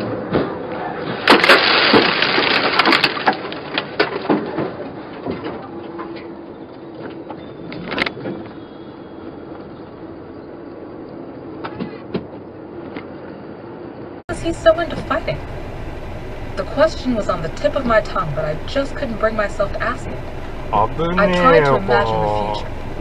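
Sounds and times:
car crash impact and debris: 0.4s - 5.4s
truck road noise: 14.3s - 23.0s.

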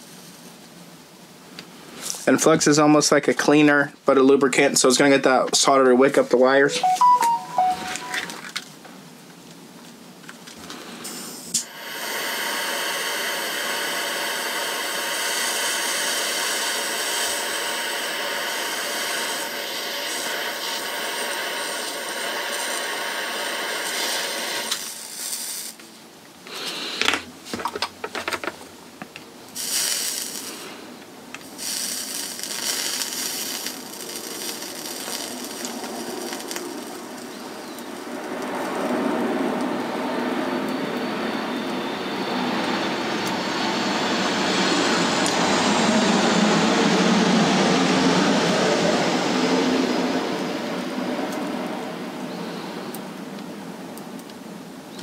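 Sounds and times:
heat gun fan hissing and whining: 10.3s - 53.5s.

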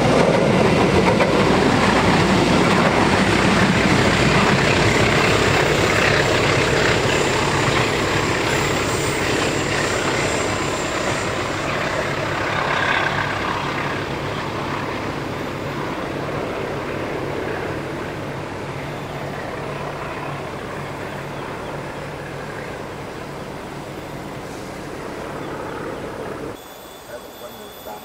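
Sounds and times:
train engine drone: 0.0s - 28.0s
wheels rumbling on rail: 0.0s - 28.0s.

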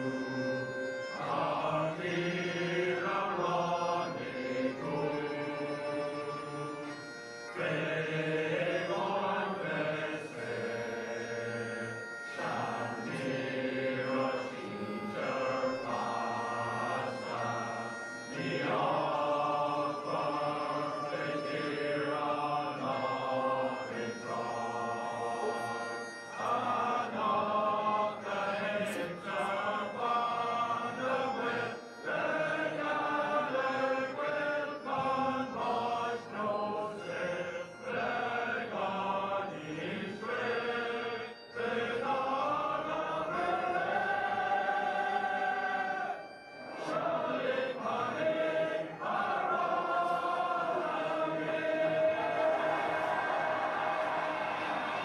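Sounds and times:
crowd singing an anthem: 0.0s - 55.0s.

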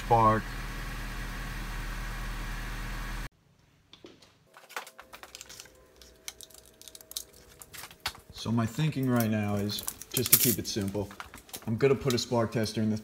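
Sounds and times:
clicks of handling plastic parts: 3.9s - 8.4s.

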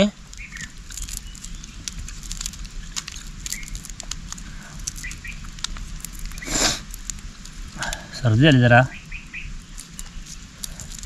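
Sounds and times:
prawn shell crackling when peeled: 0.0s - 11.0s
man sniffing: 6.4s - 6.8s.

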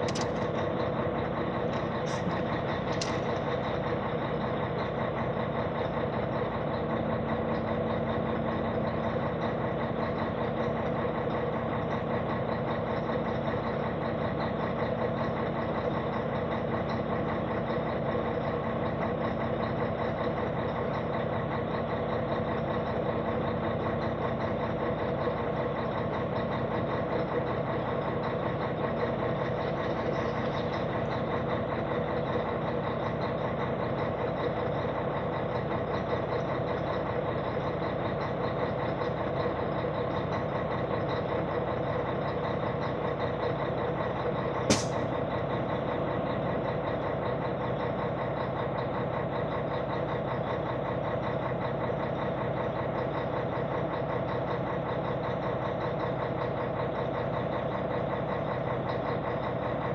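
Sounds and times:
sharp click: 0.0s - 0.6s, 44.7s - 45.1s
diesel engine idling: 0.0s - 59.9s.

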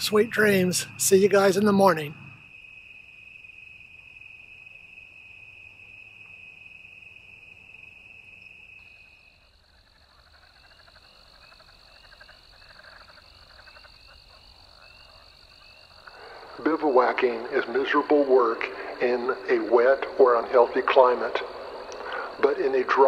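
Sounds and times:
insects and frogs trilling: 0.0s - 23.0s
rapid pulsed calls: 7.2s - 23.0s.

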